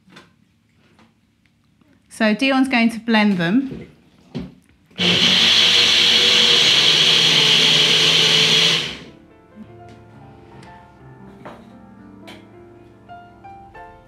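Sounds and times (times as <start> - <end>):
electric blender running: 5.0 - 9.1
soft background music: 9.1 - 14.0.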